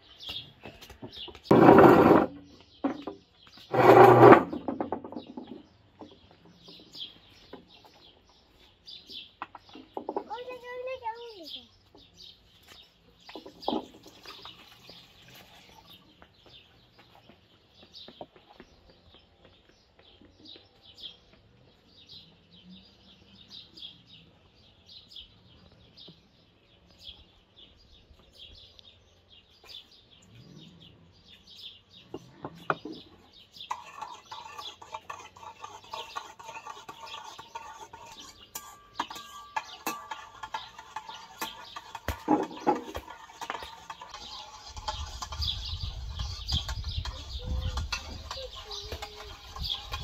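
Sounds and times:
small birds chirping: 0.0 - 50.0
chickens clucking: 39.1 - 50.0.

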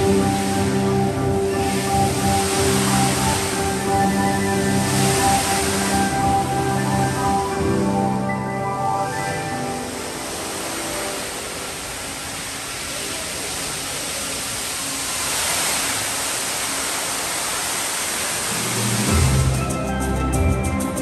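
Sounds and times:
music: 0.0 - 11.9, 18.5 - 21.0
fountain water jets splashing: 0.0 - 21.0.

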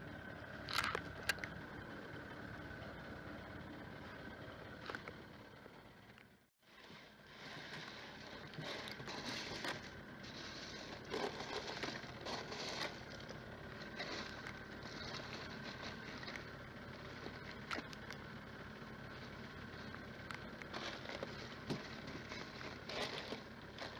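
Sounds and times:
crushed ice scraping and crackling: 6.6 - 18.1, 19.1 - 23.9.

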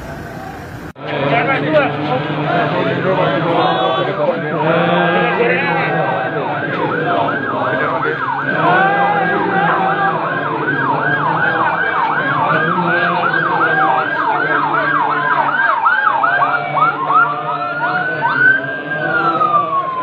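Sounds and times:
sirens yelping: 0.0 - 20.0.

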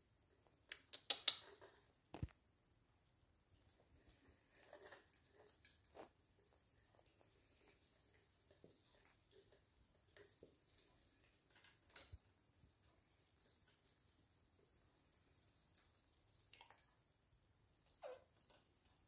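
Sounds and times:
parrot beak and claws clicking: 0.5 - 2.3.

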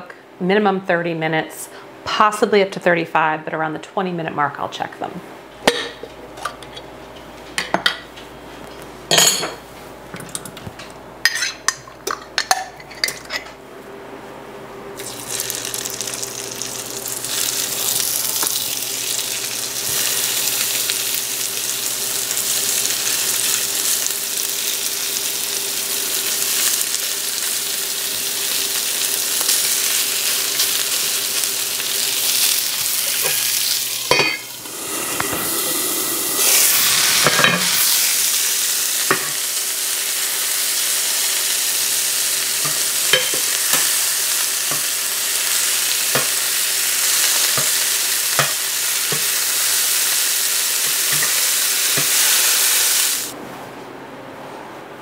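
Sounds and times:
pots and pans clinking: 9.1 - 9.6, 34.0 - 35.8, 37.2 - 37.8, 39.1 - 39.4, 42.6 - 43.9, 50.9 - 52.2
patties sizzling in a skillet: 15.0 - 53.4.

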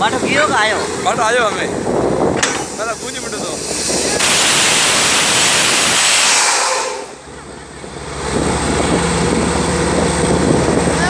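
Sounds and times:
drilling rig engine droning: 0.0 - 11.0
compressed air hissing: 2.5 - 7.2.

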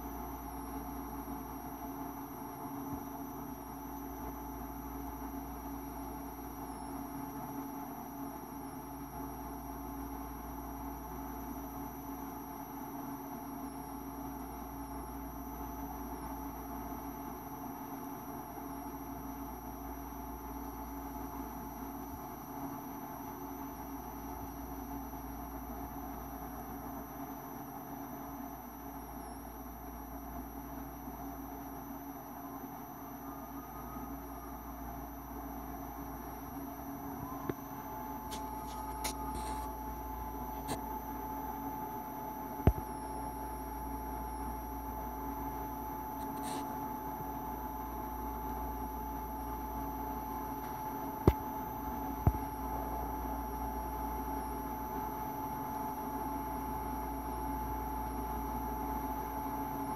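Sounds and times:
faint whining tones: 0.0 - 59.9
low background hum: 13.2 - 59.9.

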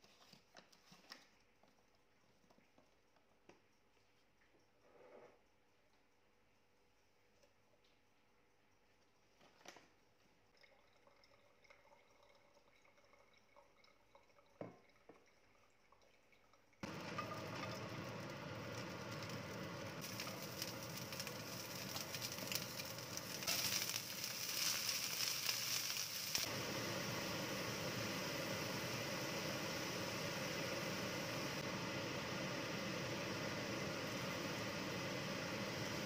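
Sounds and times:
onions sizzling in a wok: 16.8 - 36.0.

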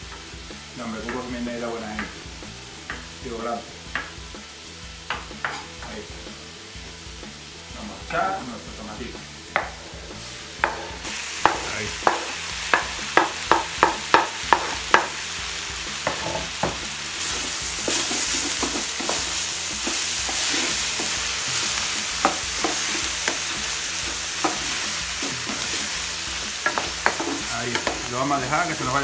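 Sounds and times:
vegetables sizzling in pan: 0.0 - 29.0
wooden spoon knocking on pan: 2.0 - 2.2, 3.9 - 4.2, 5.1 - 5.6, 9.5 - 9.8, 10.6 - 15.2, 16.0 - 16.8, 22.2 - 23.6, 26.6 - 28.1.

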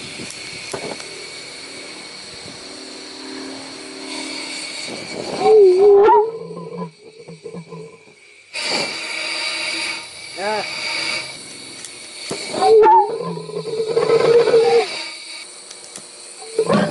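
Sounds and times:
air hissing through pulsejet: 0.0 - 16.9
pulsejet howling: 0.0 - 16.9
pulsejet sputtering: 0.0 - 16.9.

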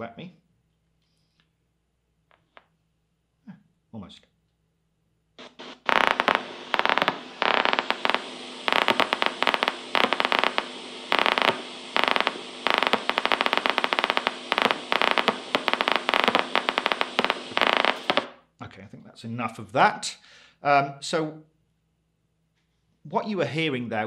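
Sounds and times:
steady hiss: 5.4 - 18.3
rapid crackling pops from speaker: 5.4 - 18.4.

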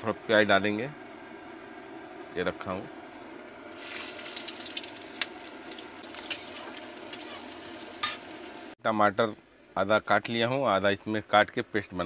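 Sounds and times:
onion sizzling in hot oil: 3.6 - 8.8
sharp crackles while stirring: 3.7 - 8.8.

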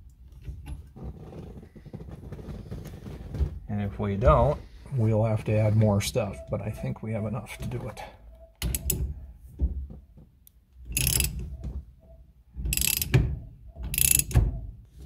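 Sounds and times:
socket ratchet clicking: 8.6 - 9.0, 11.0 - 11.4, 12.7 - 13.2, 13.9 - 14.4.

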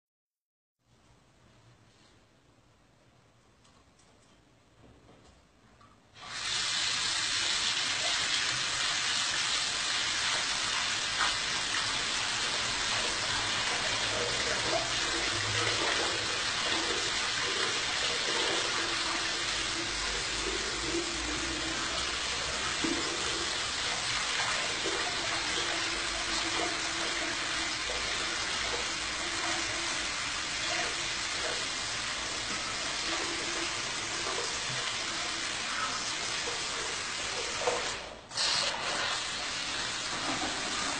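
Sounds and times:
tap water splashing into a basin: 9.9 - 30.6.

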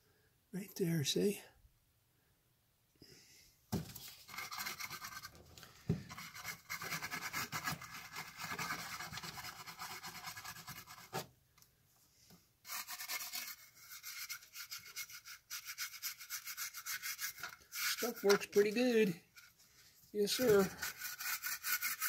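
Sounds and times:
small brush scrubbing plastic: 4.0 - 5.4, 6.0 - 11.3, 12.6 - 22.0.

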